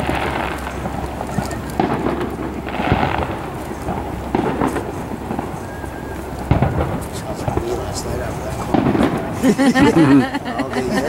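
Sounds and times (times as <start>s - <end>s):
fireworks booming: 0.0s - 11.0s.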